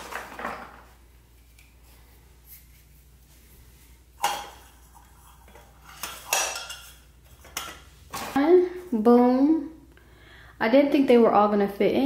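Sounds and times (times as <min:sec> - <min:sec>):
plastic canisters clinking on countertop: 0:00.0 - 0:00.9.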